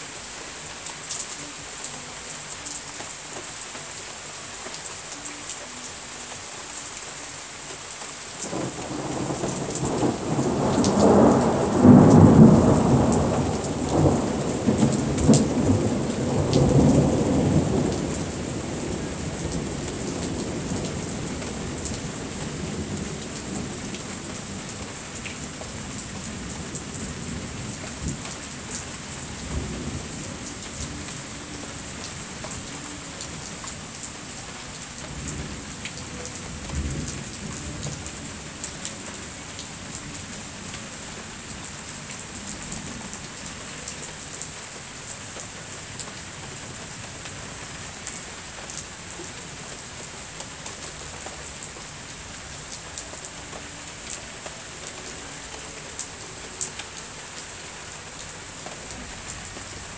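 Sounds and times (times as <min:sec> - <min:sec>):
heavy rain falling: 0:00.0 - 0:59.9
raindrops ticking near microphone: 0:00.0 - 0:59.9
low thunder rumbling: 0:08.5 - 0:21.9.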